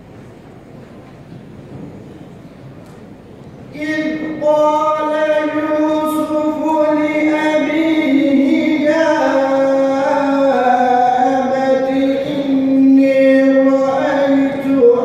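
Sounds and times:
young man chanting melodically: 3.7 - 15.0.

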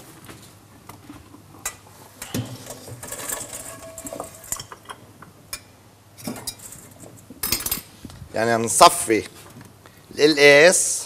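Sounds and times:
metal pots and utensils clinking: 1.6 - 7.8.

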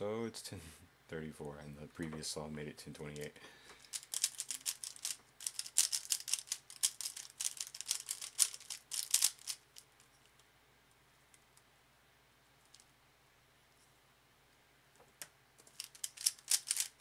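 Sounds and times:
puzzle cube clicking as turned: 3.8 - 9.9, 15.6 - 17.0.

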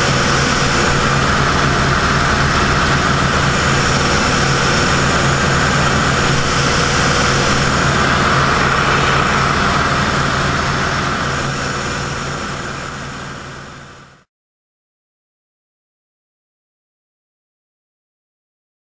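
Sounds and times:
wind rush: 0.0 - 13.2
propeller plane engine droning: 0.0 - 14.3.

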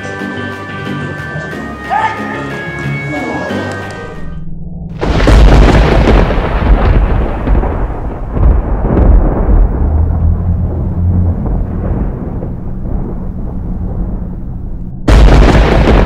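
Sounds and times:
loud low rumbling: 4.0 - 16.0.

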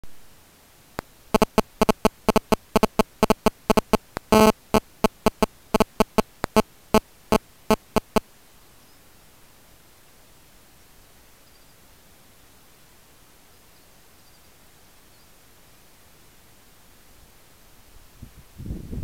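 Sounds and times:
faint hiss: 0.0 - 19.0
short sharp buzzing pulses: 1.3 - 8.2.

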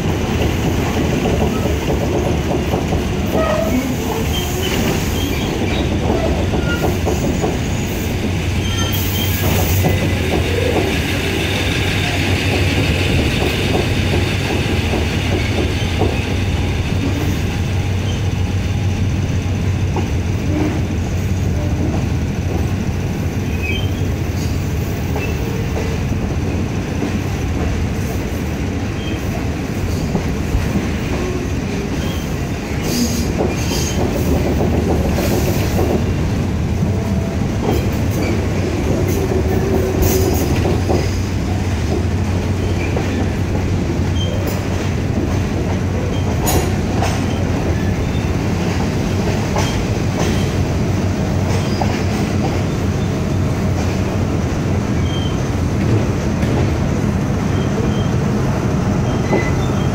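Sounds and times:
train running rumble: 0.0 - 59.9
wheel squeals: 23.5 - 24.1, 55.0 - 55.4, 59.0 - 59.9.

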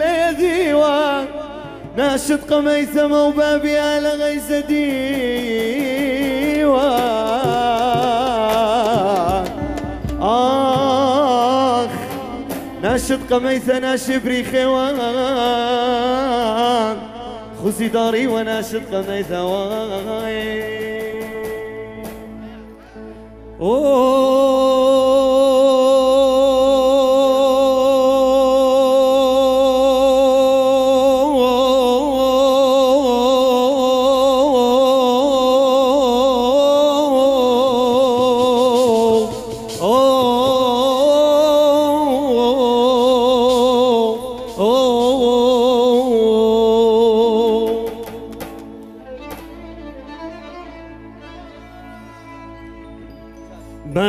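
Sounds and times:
man singing into microphone: 0.0 - 50.0, 53.7 - 54.0
quiet music: 0.0 - 54.0.

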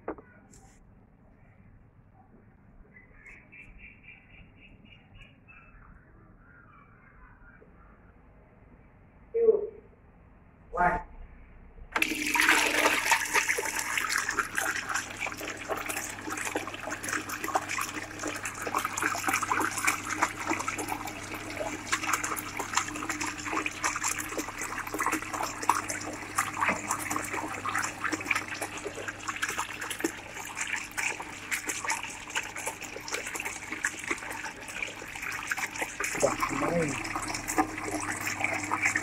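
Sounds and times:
pump motor hum: 12.0 - 39.0
water splashing into bucket: 12.0 - 39.0.

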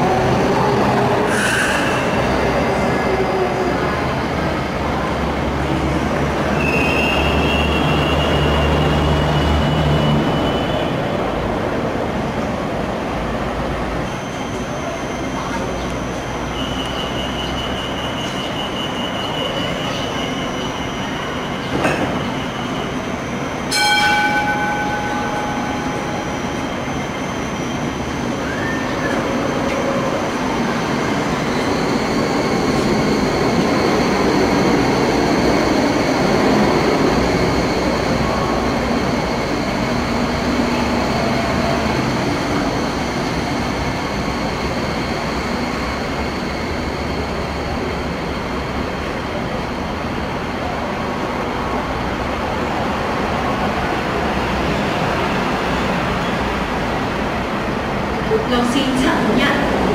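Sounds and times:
tram motor whine: 0.0 - 59.9
ringing tone: 23.7 - 27.9.

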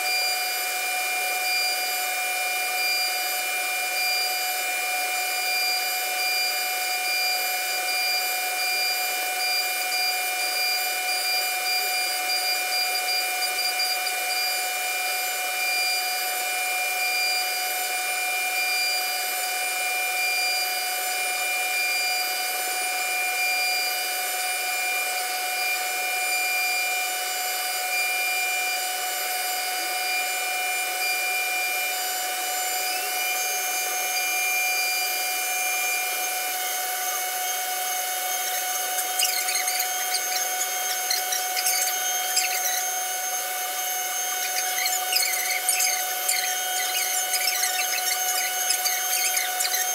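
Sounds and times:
cnc router spindle whine: 0.0 - 49.9
router bit carving wood: 0.0 - 49.9
rising high tone: 38.4 - 43.1.

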